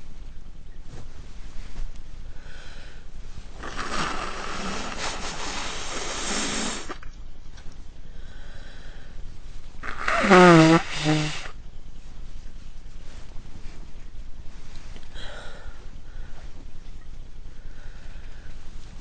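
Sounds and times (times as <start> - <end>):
person blowing nose: 3.6 - 7.0, 9.8 - 11.5.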